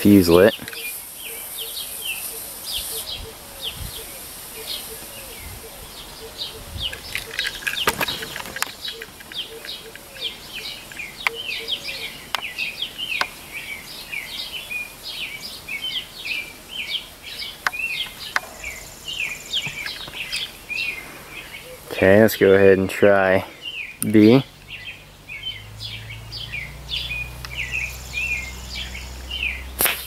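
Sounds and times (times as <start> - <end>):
small birds chirping: 0.0 - 30.0
sharp clicks: 6.9 - 10.3.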